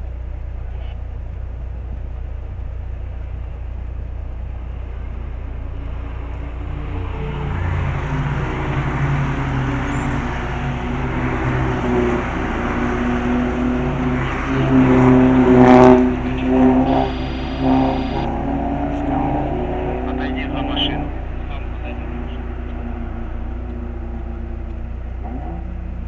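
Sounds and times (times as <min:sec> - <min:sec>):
low hum inside truck cab: 0:00.0 - 0:08.1, 0:16.3 - 0:18.2
race car engines passing: 0:04.6 - 0:26.0.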